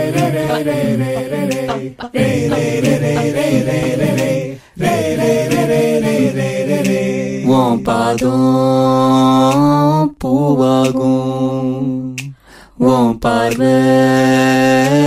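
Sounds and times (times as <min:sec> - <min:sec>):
person singing long notes: 0:00.0 - 0:15.0.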